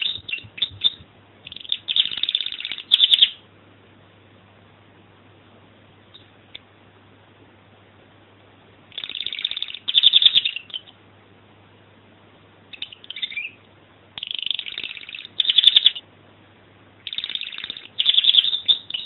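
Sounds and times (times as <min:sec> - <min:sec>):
canary singing trills: 0:00.0 - 0:03.5, 0:08.9 - 0:11.0, 0:12.7 - 0:16.1, 0:17.0 - 0:19.0.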